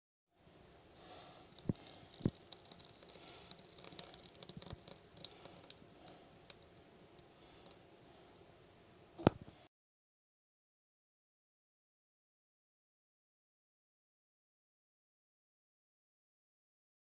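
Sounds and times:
batter pouring wet pattering: 0:00.8 - 0:08.5.

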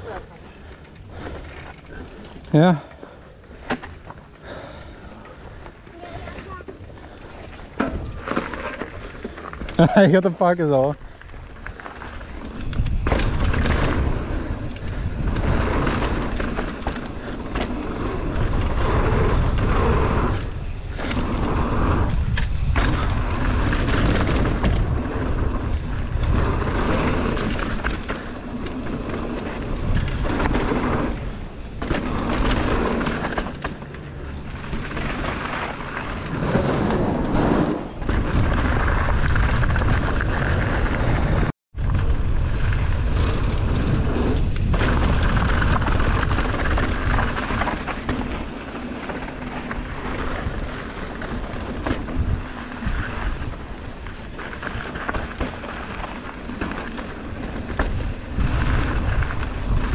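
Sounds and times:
bike rattling over bumps: 0:00.0 - 0:59.9
tyres running over dirt: 0:00.0 - 0:59.9
wind buffeting microphone: 0:11.0 - 0:59.9.

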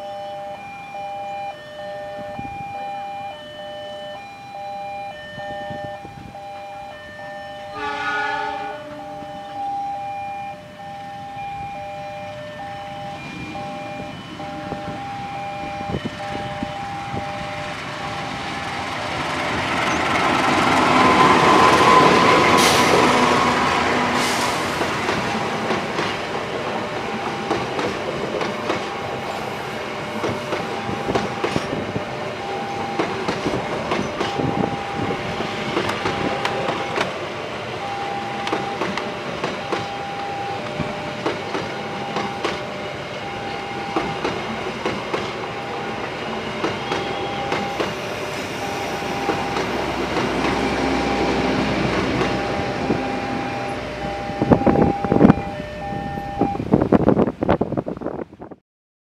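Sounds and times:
level crossing two-tone alarm: 0:00.0 - 0:25.7, 0:26.3 - 0:56.7
diesel locomotive passing: 0:00.0 - 0:58.6
train wheel rumble and clicks: 0:12.6 - 0:58.6.

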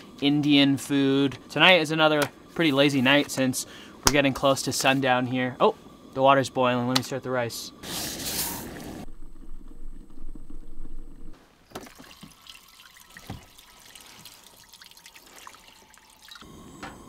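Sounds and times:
water trickling into skillet: 0:11.7 - 0:16.4.

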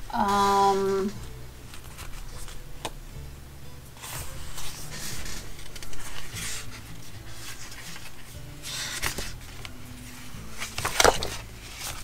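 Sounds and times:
soft background music: 0:00.0 - 0:12.0
paper pages rustling and flapping: 0:01.7 - 0:03.0, 0:04.0 - 0:12.0.

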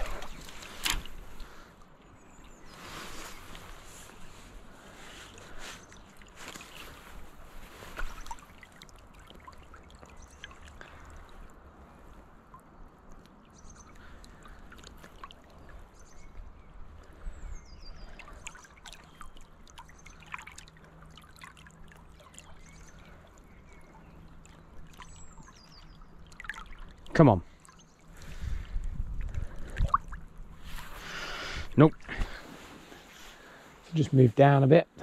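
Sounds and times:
small splashes and drips: 0:00.0 - 0:02.8, 0:05.0 - 0:31.0
river water trickling: 0:00.0 - 0:35.0.

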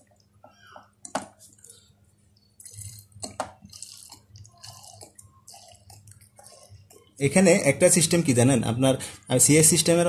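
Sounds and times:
liquid squelching and dripping: 0:00.0 - 0:07.2.

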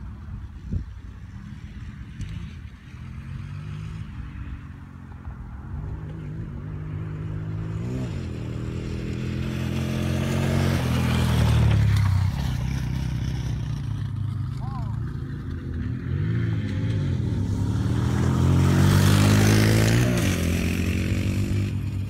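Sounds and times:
atv engines revving: 0:00.0 - 0:22.0.

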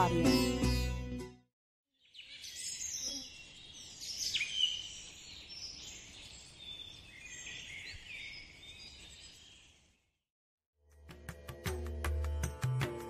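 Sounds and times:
birds chirping and whistling: 0:02.0 - 0:09.8.

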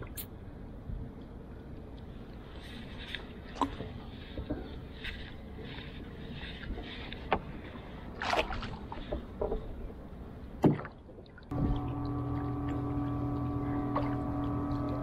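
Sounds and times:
steady low hum: 0:00.0 - 0:15.0
paddle knocking canoe: 0:10.6 - 0:15.0.

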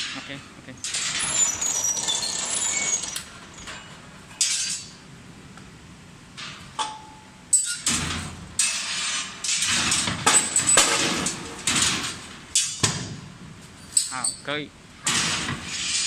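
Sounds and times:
metal clanks: 0:06.3 - 0:16.0
hot steel scraping over rack: 0:07.8 - 0:12.3, 0:15.0 - 0:16.0.

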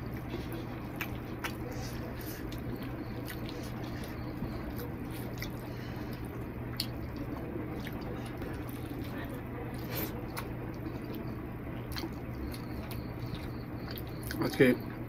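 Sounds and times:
fingers squishing wet food: 0:00.0 - 0:14.7
low steady hum: 0:00.0 - 0:15.0.

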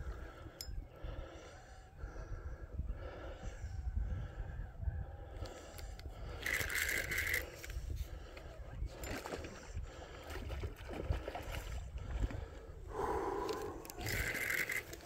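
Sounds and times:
fishing reel cranking: 0:06.0 - 0:07.8, 0:13.4 - 0:15.0
reel drag buzzing: 0:06.1 - 0:07.8, 0:13.0 - 0:15.0.

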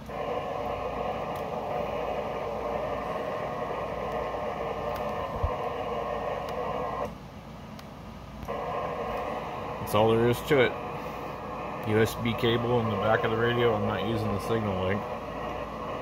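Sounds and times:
radio static rushing: 0:08.4 - 0:16.0.

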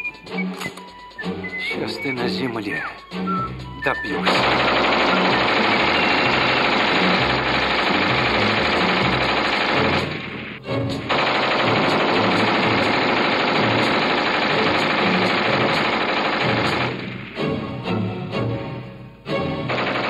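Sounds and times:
machine-gun fire: 0:04.3 - 0:17.4, 0:19.7 - 0:20.0
rifle shots: 0:04.3 - 0:17.4, 0:19.7 - 0:20.0.

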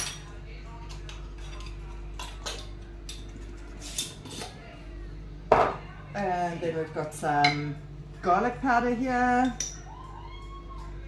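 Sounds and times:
spoon and containers clinking: 0:00.0 - 0:04.6, 0:09.3 - 0:09.9
steady low hum: 0:00.2 - 0:11.0.

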